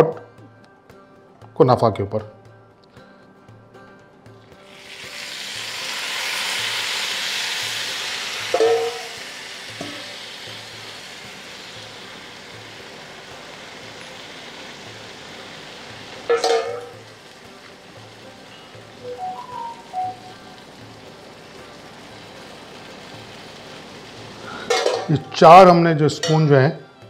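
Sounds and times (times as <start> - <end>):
syrup sizzling in hot pan: 4.5 - 25.4.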